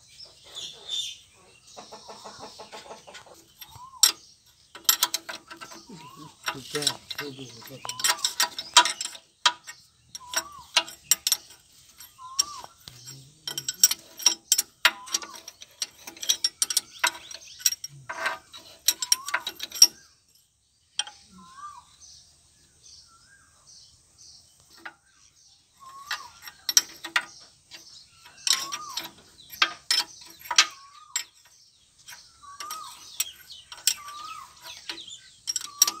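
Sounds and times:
metal gears clicking and rattling: 3.1 - 21.2, 24.6 - 25.1, 25.8 - 36.0.

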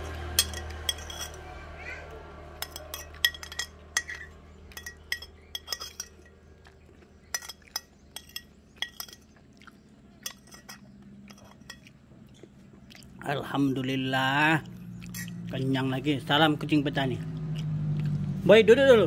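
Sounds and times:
metal spoon clinking on glass plate: 0.4 - 1.4, 2.6 - 6.3, 7.3 - 9.2, 10.2 - 11.9.

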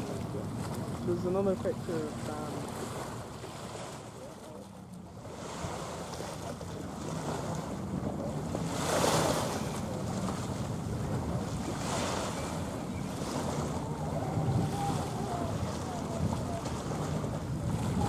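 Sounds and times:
small waves washing on shore: 0.0 - 18.0
wind buffeting microphone: 5.2 - 18.0.

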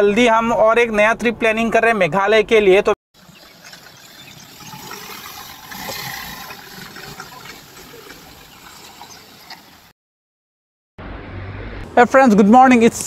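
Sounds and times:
car driving past: 11.0 - 12.0.

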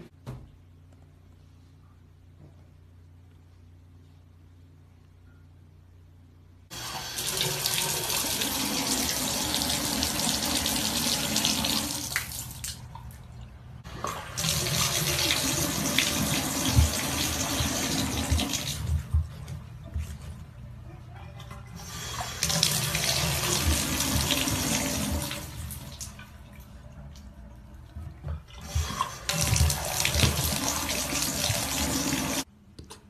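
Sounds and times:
water running into a bathtub: 6.7 - 32.5.

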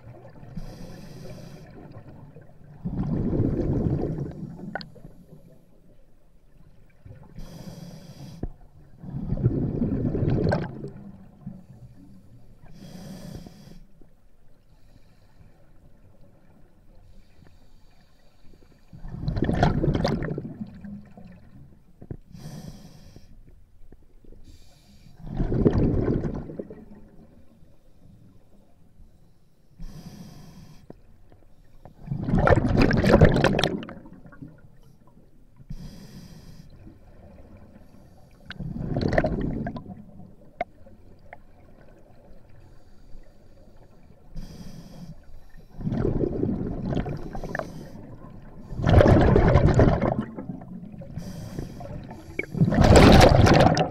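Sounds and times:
hissing regulator inhalations: 0.6 - 1.9, 29.3 - 31.0, 35.7 - 36.8, 42.7 - 45.8, 51.1 - 52.8
bubbling regulator exhalations: 25.2 - 26.9, 32.1 - 34.4, 45.8 - 47.8, 48.6 - 53.9.

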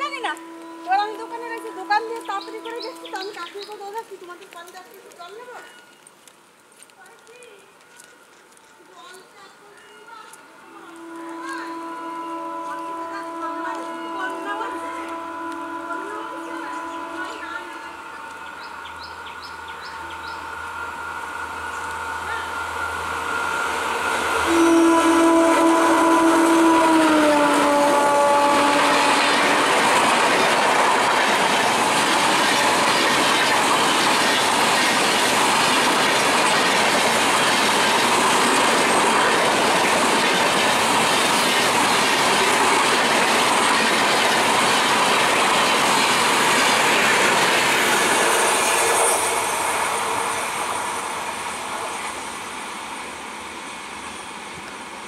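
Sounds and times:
locomotive horn: 0.0 - 3.7, 10.5 - 18.9, 19.6 - 34.9
electric locomotive approaching: 0.0 - 6.7, 8.8 - 55.0.

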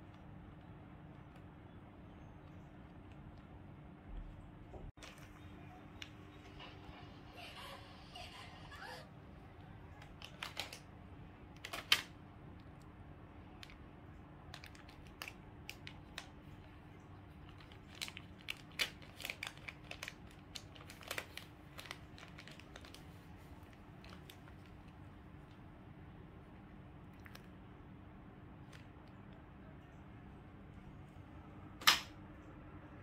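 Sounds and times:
faint steady hum: 0.0 - 33.0
plastic packets crinkling: 9.9 - 10.9, 11.5 - 12.2, 14.4 - 25.1.

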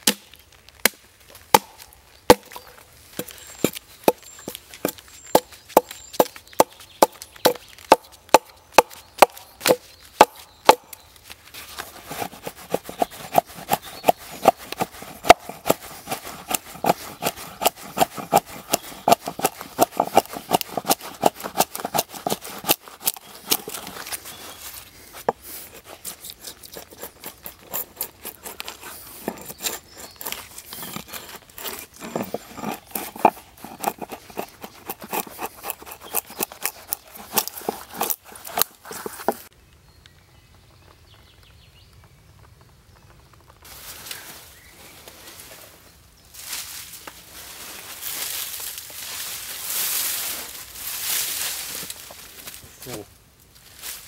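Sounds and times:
axe chopping wood: 0.0 - 11.0, 12.1 - 24.2, 27.7 - 39.5.

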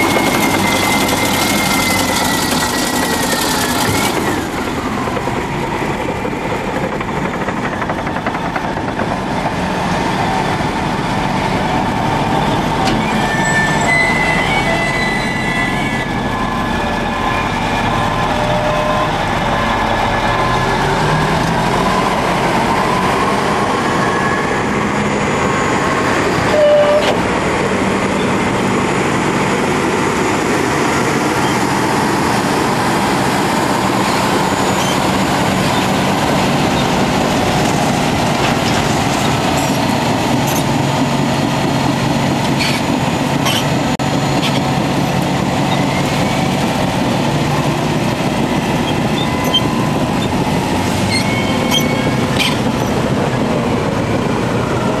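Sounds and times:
heavy diesel engines under load: 0.0 - 55.0
metallic clanks and squeaks: 12.8 - 16.3, 34.0 - 37.0, 38.4 - 40.8, 42.4 - 43.8, 44.4 - 44.7, 48.8 - 53.0.

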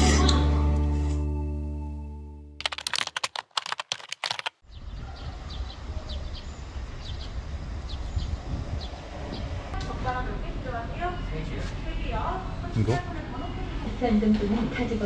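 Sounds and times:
keyboard typing clicks: 2.6 - 4.5
wind rumble on microphone: 4.6 - 9.8.

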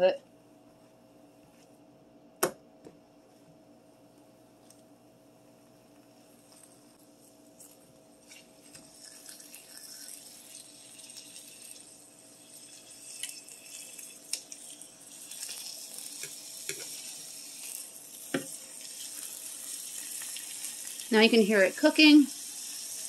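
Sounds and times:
pork chops sizzling in pan: 8.2 - 23.0.

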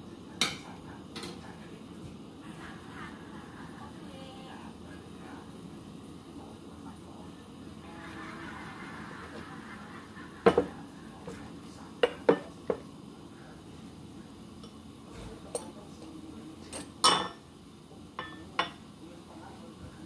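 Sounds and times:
ceramic dishes clinking: 12.0 - 12.8, 16.7 - 17.4, 18.2 - 18.8.

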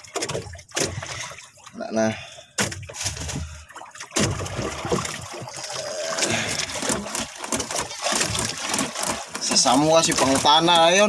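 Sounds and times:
water splashing against boat hull: 0.0 - 11.0.

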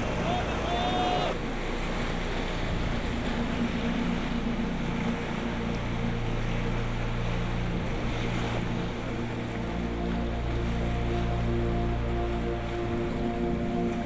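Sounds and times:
river rapids rushing: 0.0 - 14.0.

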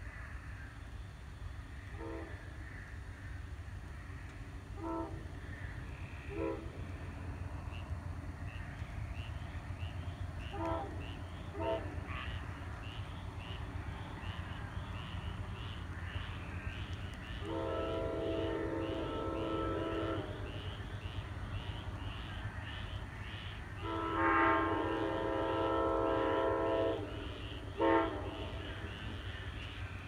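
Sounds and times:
distant train air horn blasts: 1.9 - 2.4, 4.8 - 5.3, 6.2 - 6.9, 10.4 - 12.2, 17.4 - 20.8, 23.8 - 29.2.

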